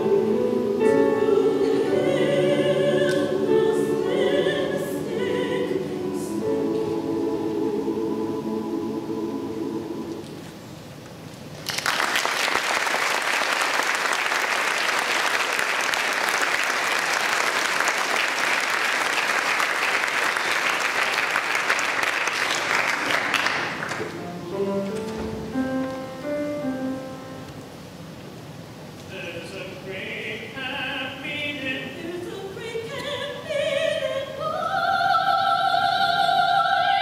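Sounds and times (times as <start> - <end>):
choir holding a chord: 0.0 - 10.6, 30.6 - 37.0
audience applause: 11.6 - 24.2
piano single notes: 24.1 - 27.8.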